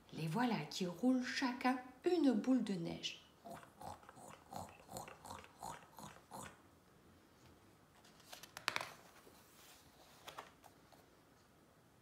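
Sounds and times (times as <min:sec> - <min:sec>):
paper page turning: 0:08.0 - 0:11.0.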